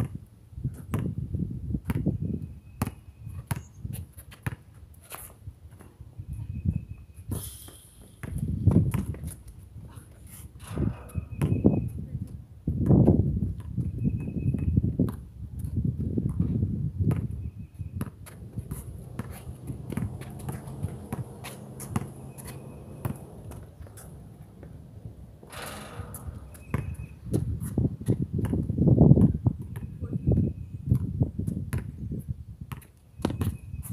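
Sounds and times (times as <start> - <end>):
basketball bouncing on hard court: 2.8 - 3.7, 8.2 - 9.3, 10.6 - 11.8, 16.2 - 29.9, 32.7 - 33.6
footsteps scuffing: 18.2 - 24.7.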